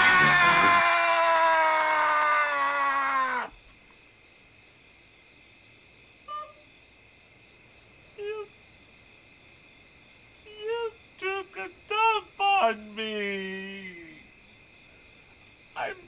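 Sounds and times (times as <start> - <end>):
man yelling: 10.6 - 14.2, 15.8 - 16.0.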